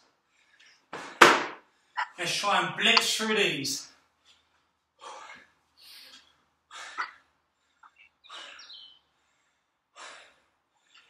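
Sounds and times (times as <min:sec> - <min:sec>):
man breathing hard: 0:05.0 - 0:11.0.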